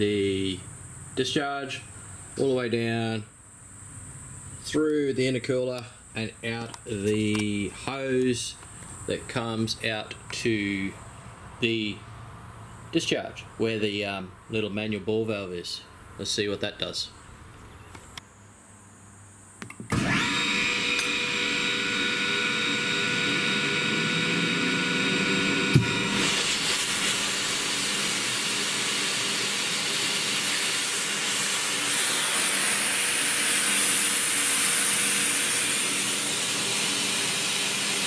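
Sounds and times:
sharp click: 19.6s - 20.0s
air compressor motor whine: 19.6s - 38.0s.

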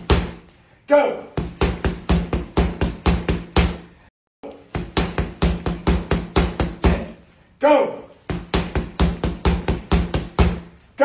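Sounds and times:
gloved punches on punching bag: 0.0s - 0.4s, 1.4s - 3.9s, 4.7s - 7.1s, 8.3s - 10.7s.

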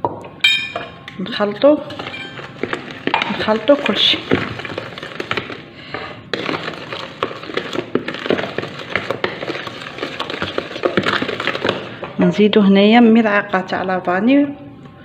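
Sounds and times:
utensil beating batter in bowl: 1.8s - 12.2s.

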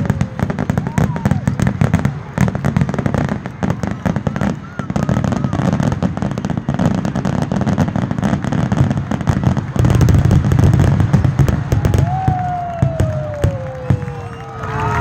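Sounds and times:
firework bangs and crackles: 0.0s - 15.0s.

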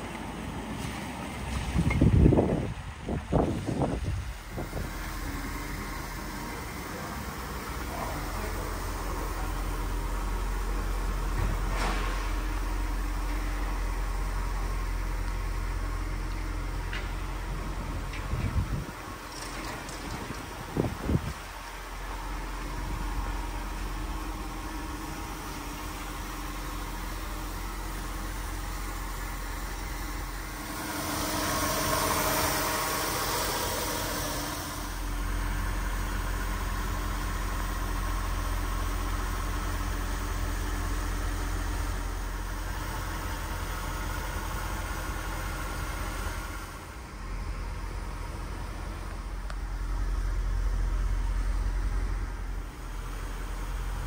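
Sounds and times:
car engine idling: 0.0s - 54.0s
loud rushing: 30.4s - 35.1s.

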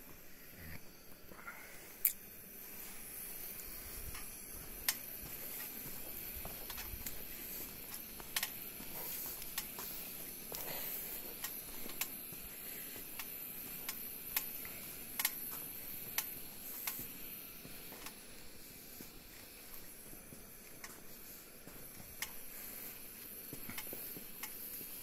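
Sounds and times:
steady hiss: 0.0s - 25.0s
footsteps on gritty floor: 4.0s - 9.9s.

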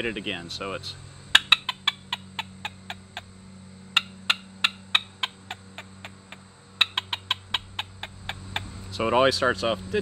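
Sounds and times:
squirrel call sharp barks: 1.3s - 3.3s, 3.9s - 8.7s.

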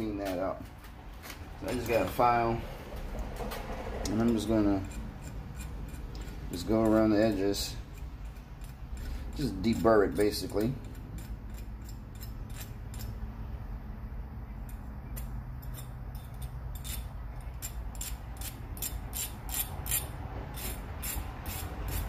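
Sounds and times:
hand file rasping metal edge: 4.1s - 13.2s, 15.2s - 22.0s.

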